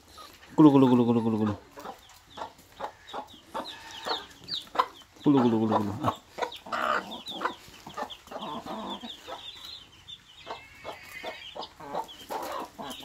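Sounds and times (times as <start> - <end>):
chicks peeping: 0.0 - 13.0
hen clucking: 0.0 - 13.0.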